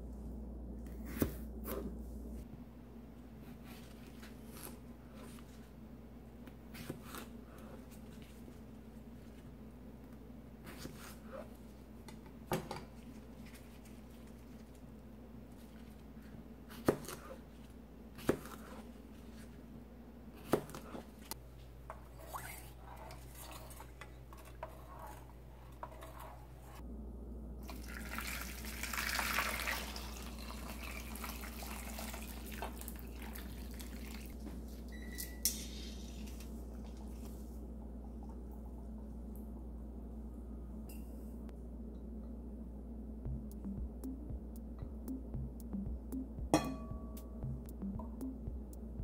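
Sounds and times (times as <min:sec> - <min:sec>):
water pouring and splashing: 0:27.7 - 0:34.4.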